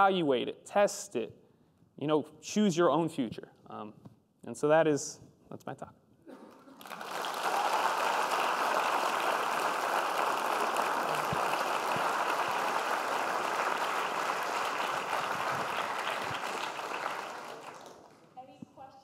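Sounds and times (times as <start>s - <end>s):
audience applauding: 6.5s - 18.3s.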